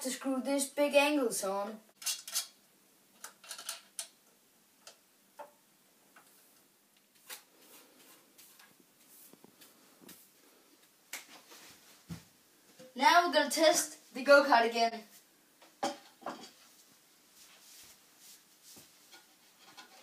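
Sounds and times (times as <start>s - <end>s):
metal brackets and screws clicking: 2.0s - 2.6s, 3.2s - 4.2s.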